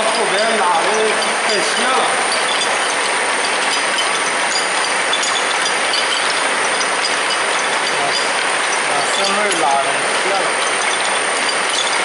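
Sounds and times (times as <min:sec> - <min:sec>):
braiding machines clattering: 0:00.0 - 0:12.0.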